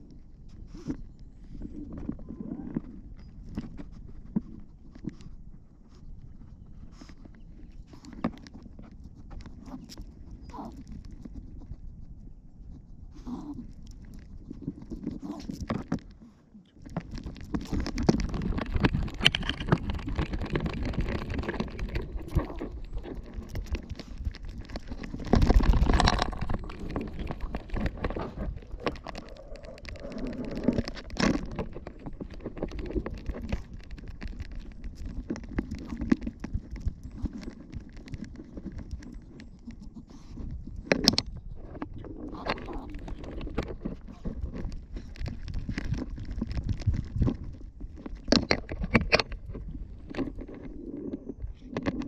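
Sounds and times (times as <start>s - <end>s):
rubbing and rustling on camera: 0.0s - 52.0s.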